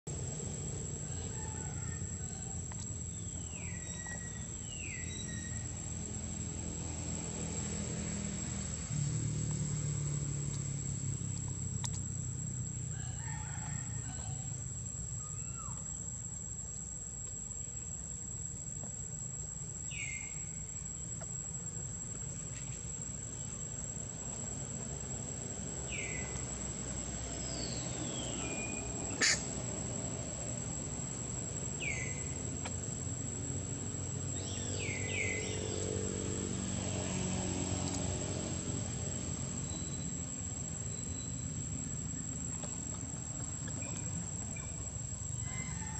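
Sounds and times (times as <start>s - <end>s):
high insect drone: 0.1s - 45.9s
short high-pitched calls: 29.2s - 29.4s.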